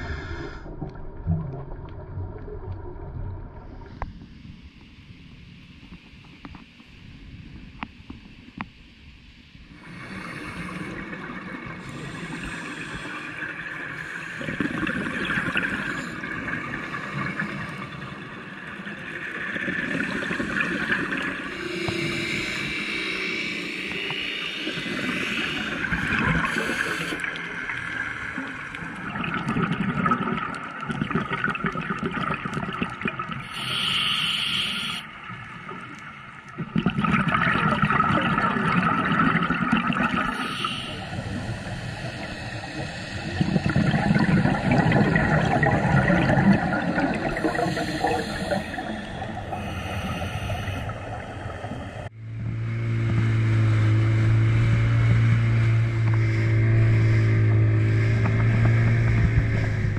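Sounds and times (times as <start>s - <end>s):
scuba bubbles gurgling underwater: 9.7s - 22.9s, 23.9s - 52.1s.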